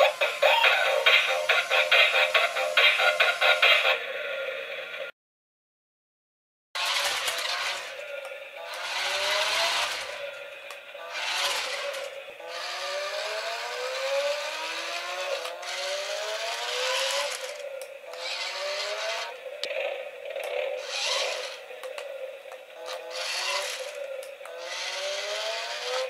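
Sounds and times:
electric motors whining: 0:06.8 - 0:26.0
gears and wheels rattling: 0:06.8 - 0:26.0.

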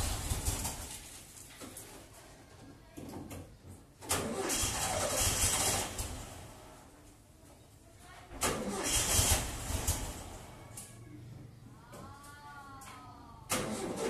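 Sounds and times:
car engine cranking on starter: 0:04.0 - 0:06.7, 0:08.4 - 0:10.6, 0:13.5 - 0:14.0.

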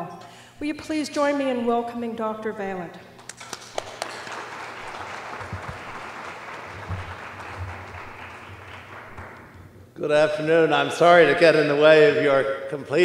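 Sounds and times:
audience applauding: 0:03.2 - 0:09.6.

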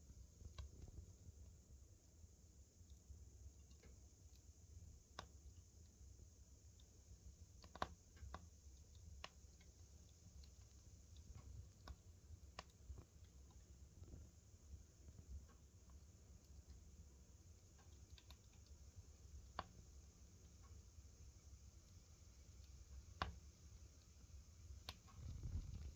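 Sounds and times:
log fire crackling: 0:00.0 - 0:25.9
low steady hum: 0:00.0 - 0:25.9
fire pops and snaps: 0:00.1 - 0:01.2, 0:03.6 - 0:05.6, 0:06.8 - 0:14.4, 0:17.6 - 0:20.8, 0:21.8 - 0:25.9.

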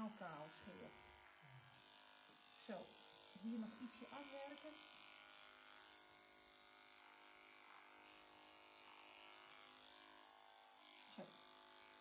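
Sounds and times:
electric clippers humming: 0:00.0 - 0:12.0.

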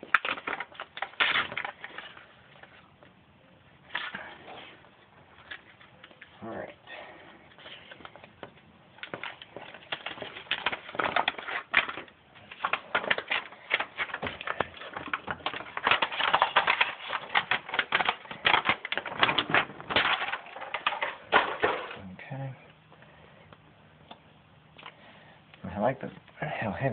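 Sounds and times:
paper backing crackling: 0:00.0 - 0:03.2, 0:03.8 - 0:22.2.

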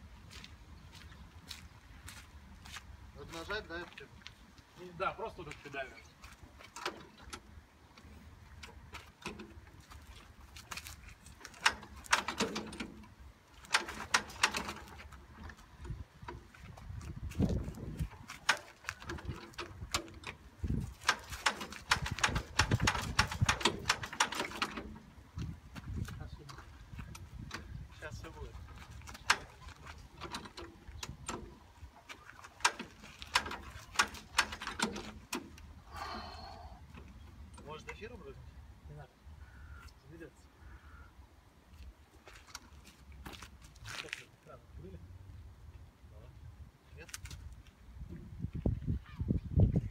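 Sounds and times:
starting crank clacks and knocks: 0:11.5 - 0:16.4, 0:18.0 - 0:25.1, 0:29.0 - 0:31.6, 0:32.5 - 0:35.6.

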